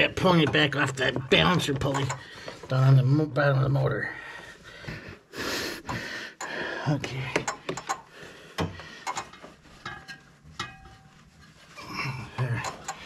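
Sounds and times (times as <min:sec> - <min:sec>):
metal clicks and knocks: 0:00.3 - 0:02.7, 0:07.3 - 0:11.1, 0:12.6 - 0:13.0
belt rubbing and rustling: 0:09.1 - 0:13.0.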